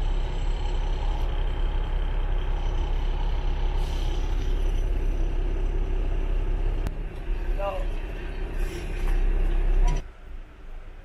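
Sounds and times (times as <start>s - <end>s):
diesel engine idling: 0.0s - 11.0s.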